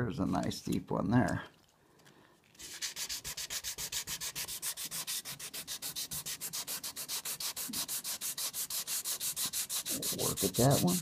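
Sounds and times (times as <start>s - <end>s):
wet sanding on metal: 2.6s - 11.0s.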